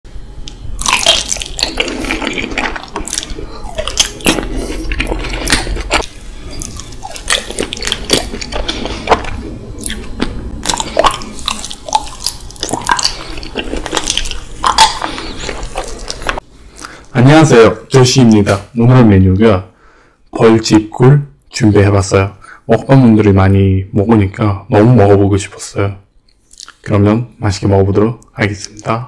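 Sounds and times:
wet sticky chewing: 0.8 - 16.9, 26.4 - 26.8
lip-smacking and sucking: 1.1 - 17.1, 26.4 - 26.8.

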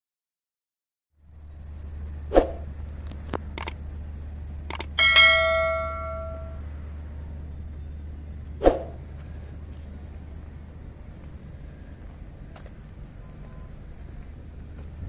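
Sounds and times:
mouse clicks: 3.6 - 3.8, 4.7 - 4.9
notification bell ding: 5.0 - 6.6.

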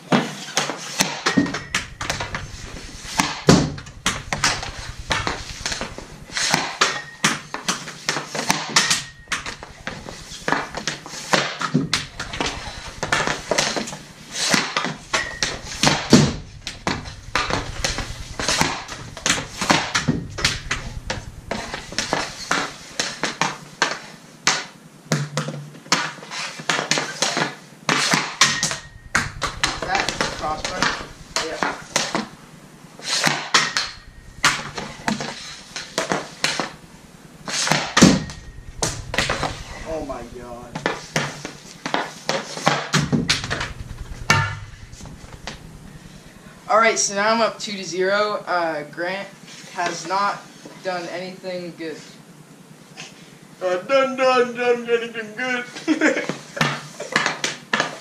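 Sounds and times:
puck cracking on stick or boards: 23.9 - 28.4.

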